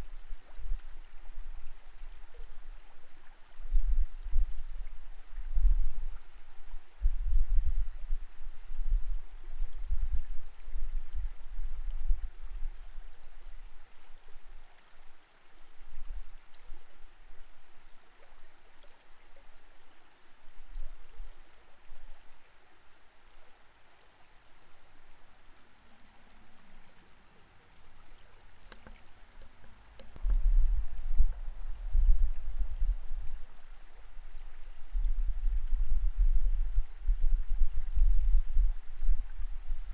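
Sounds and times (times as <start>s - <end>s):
muffled underwater water hiss: 0.0s - 39.9s
low thumps against camera housing: 30.0s - 31.5s.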